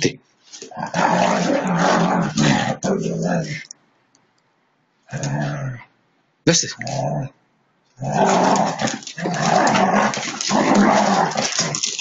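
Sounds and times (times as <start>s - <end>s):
dogs growling in play: 0.6s - 3.7s, 5.1s - 5.9s, 6.8s - 7.4s, 8.0s - 12.0s.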